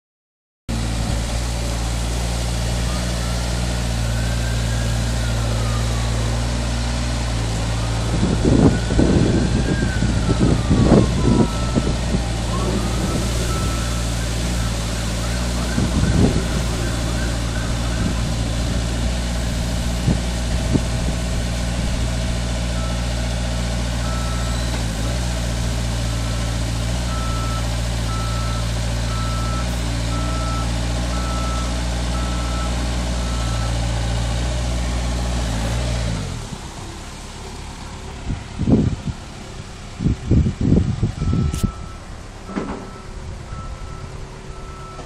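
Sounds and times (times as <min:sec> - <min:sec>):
forklift engine running: 0:00.7 - 0:45.0
reversing alarm beeping: 0:07.7 - 0:18.9, 0:24.0 - 0:25.0, 0:27.1 - 0:33.9, 0:41.2 - 0:45.0.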